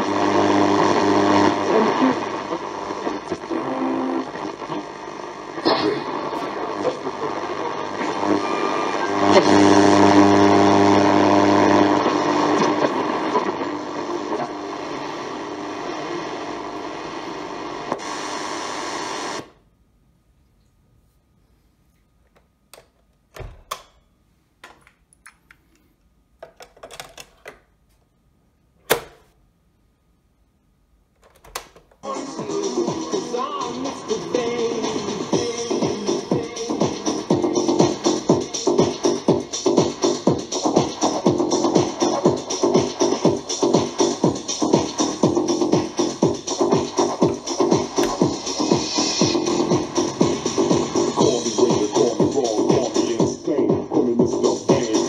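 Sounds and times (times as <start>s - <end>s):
radio playing music and voice: 0.0s - 19.6s, 31.6s - 55.0s.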